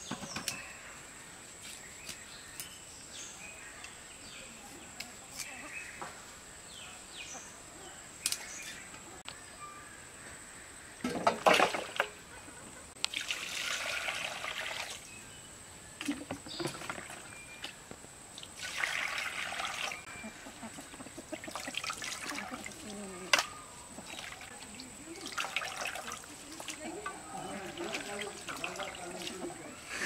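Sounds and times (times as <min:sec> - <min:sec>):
water splashing and sloshing: 0:11.0 - 0:12.3, 0:12.9 - 0:15.1, 0:16.0 - 0:20.1, 0:21.2 - 0:29.7
water pouring: 0:13.0 - 0:15.1, 0:18.4 - 0:20.1, 0:21.4 - 0:23.4, 0:24.0 - 0:29.7.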